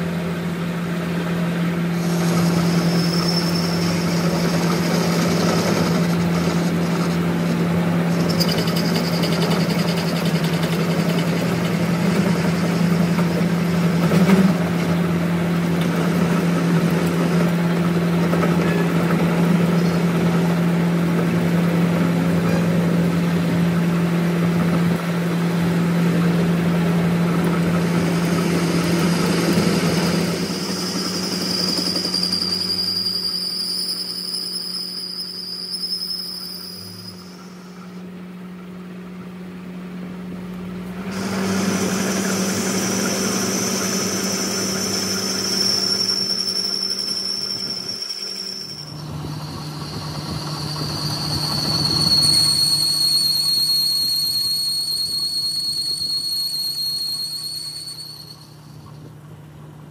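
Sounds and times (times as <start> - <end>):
machine humming: 0.0 - 59.9.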